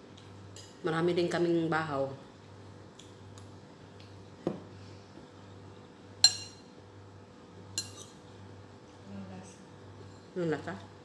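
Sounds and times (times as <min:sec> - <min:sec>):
low steady hum: 0:00.0 - 0:11.0
spoon clinking against bowl: 0:06.2 - 0:06.7, 0:07.8 - 0:08.2.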